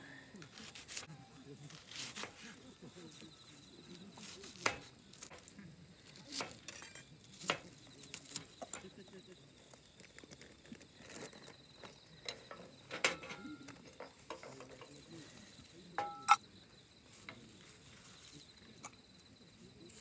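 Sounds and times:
crickets chirring: 0:00.0 - 0:20.0
metal bowl clinking: 0:16.0 - 0:16.4.

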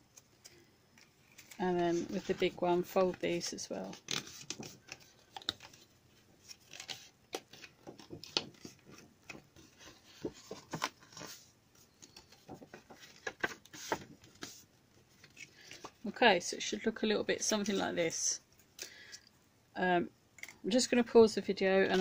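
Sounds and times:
paper rustling and crackling: 0:00.1 - 0:16.1.

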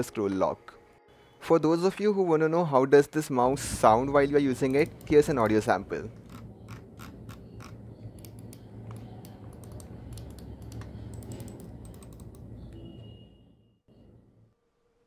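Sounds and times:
low hum: 0:03.4 - 0:14.9.

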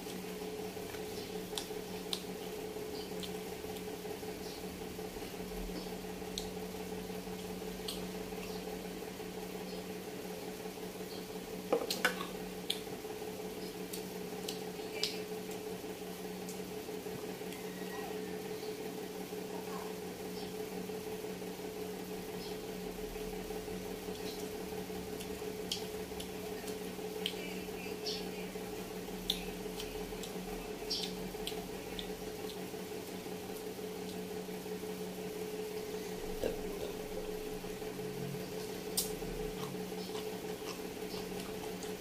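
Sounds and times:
steady hum: 0:00.0 - 0:42.0
wet chewing and smacking: 0:00.8 - 0:04.0, 0:07.3 - 0:08.5, 0:11.8 - 0:12.9, 0:24.0 - 0:27.4, 0:29.1 - 0:34.3, 0:38.5 - 0:42.0.

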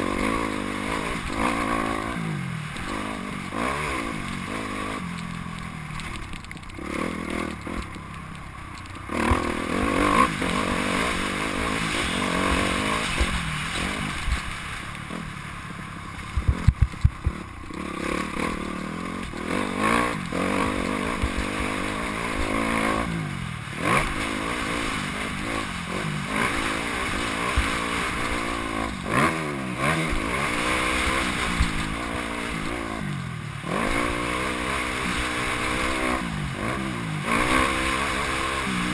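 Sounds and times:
dirt bike engine revving: 0:00.0 - 0:08.2, 0:08.9 - 0:38.9.

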